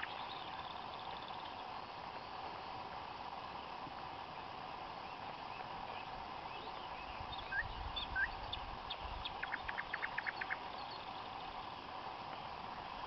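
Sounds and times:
bird chirps: 0:00.0 - 0:01.6, 0:05.9 - 0:11.5
frog chorus: 0:07.4 - 0:11.1
short frog calls: 0:07.5 - 0:11.0.

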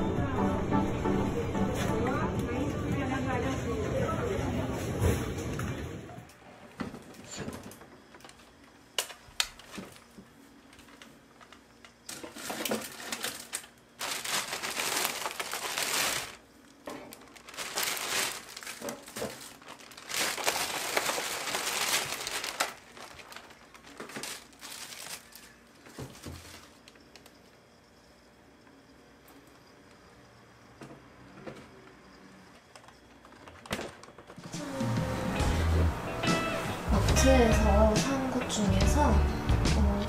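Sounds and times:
plastic packaging crinkling: 0:10.8 - 0:27.4.

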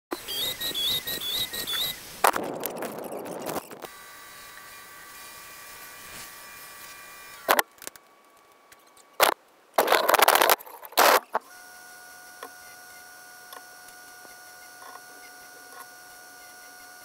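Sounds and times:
sander motor whining: 0:00.1 - 0:07.6, 0:11.0 - 0:17.0
clicks of small wooden pieces: 0:09.2 - 0:11.4.

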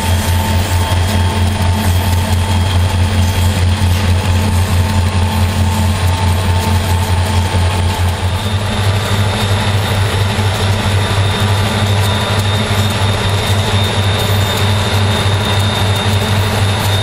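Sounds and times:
diesel locomotive engine throbbing: 0:00.0 - 0:17.0.

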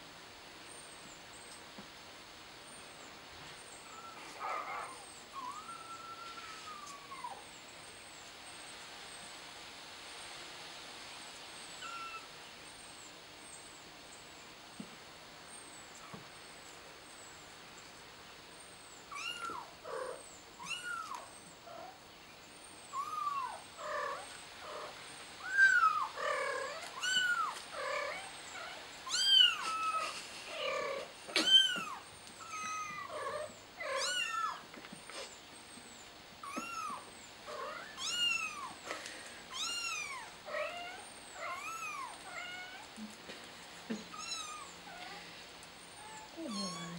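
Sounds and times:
kitten mewing: 0:46.0 - 0:46.9.

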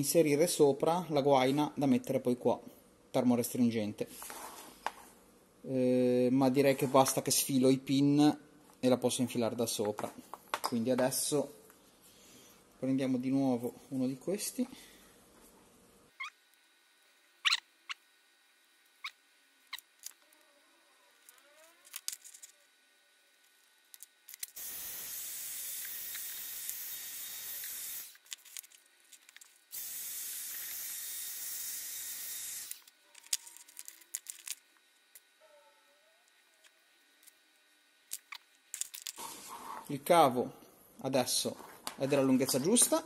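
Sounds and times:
heat gun blowing: 0:24.5 - 0:28.2, 0:29.7 - 0:32.9.

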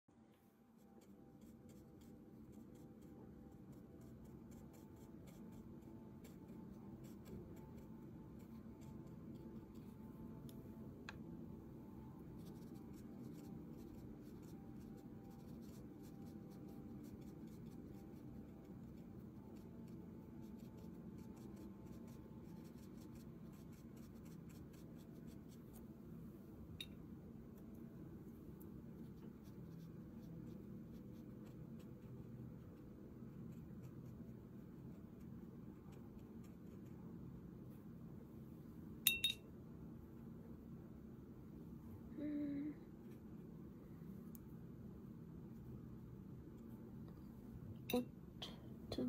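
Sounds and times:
low steady hum: 0:00.1 - 0:49.0
brush scratching on paper: 0:00.7 - 0:10.0, 0:12.3 - 0:25.8, 0:29.0 - 0:32.2.

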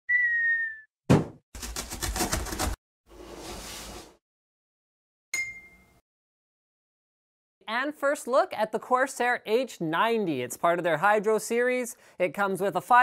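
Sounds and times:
sharp thump: 0:01.1 - 0:01.4.

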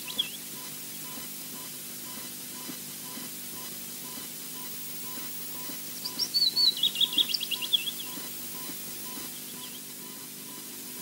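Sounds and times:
bird chick chirping: 0:06.0 - 0:08.3.

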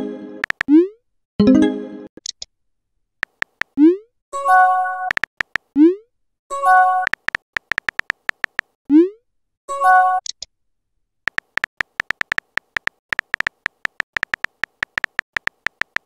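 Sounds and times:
keyboard tap clicks: 0:00.4 - 0:00.7, 0:03.2 - 0:03.8, 0:05.1 - 0:05.7, 0:07.1 - 0:08.7, 0:11.3 - 0:16.0.

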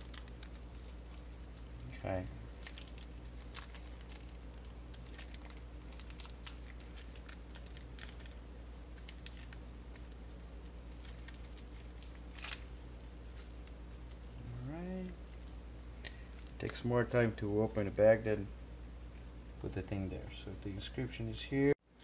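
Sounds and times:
plastic bag crinkling: 0:00.0 - 0:16.8
steady low hum: 0:00.0 - 0:22.0.

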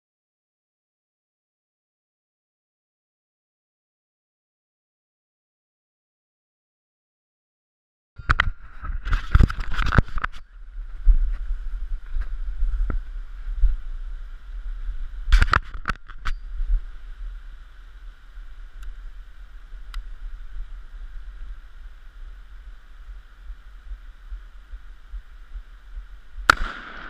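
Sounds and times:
low rumble and hiss: 0:16.3 - 0:27.0
sharp cracks: 0:26.4 - 0:27.0.

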